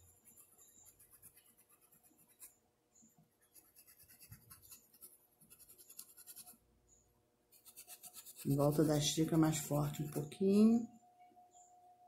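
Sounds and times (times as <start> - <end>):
paintbrush scratching fabric: 0.0 - 2.6, 3.4 - 6.6, 7.5 - 9.5.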